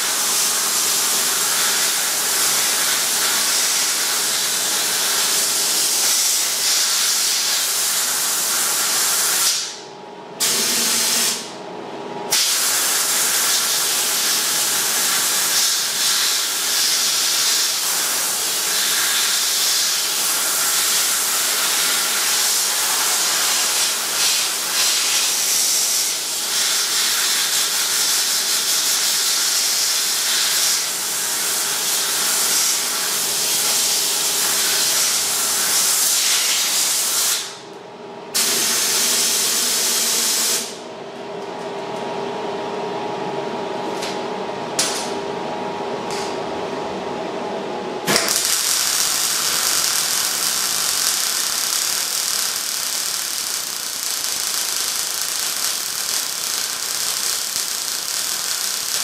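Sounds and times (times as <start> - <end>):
compressed air hissing: 48.1 - 59.0.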